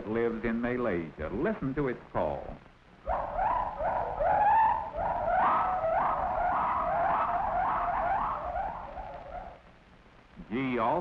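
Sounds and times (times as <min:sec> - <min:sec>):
gibbon whooping: 0:03.1 - 0:09.6.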